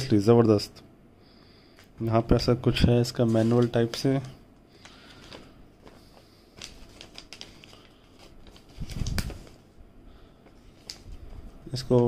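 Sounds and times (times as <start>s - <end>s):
paper rustling and crinkling: 3.1s - 9.7s, 10.4s - 12.0s.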